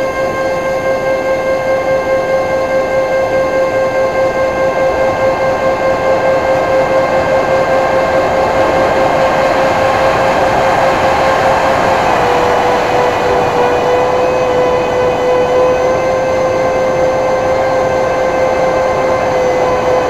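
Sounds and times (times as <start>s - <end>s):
high electric motor whine: 0.0s - 20.0s.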